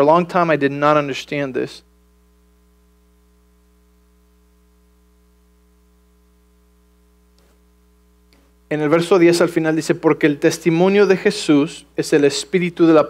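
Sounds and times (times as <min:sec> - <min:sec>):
electrical mains hum: 0:00.0 - 0:13.0.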